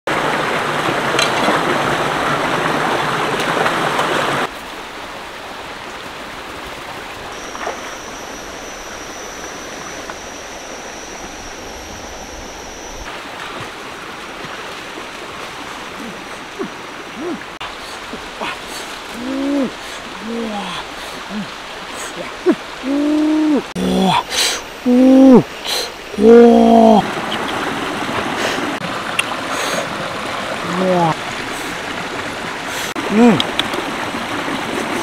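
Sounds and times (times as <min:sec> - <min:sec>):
stream rushing over stones: 0:00.1 - 0:35.0
high-pitched whine: 0:07.3 - 0:13.1.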